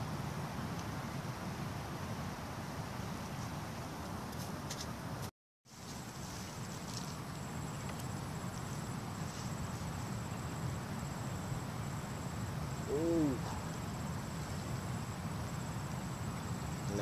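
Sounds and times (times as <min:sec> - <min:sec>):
insect trilling: 0:06.6 - 0:17.0
rising and falling hoot: 0:12.8 - 0:13.7.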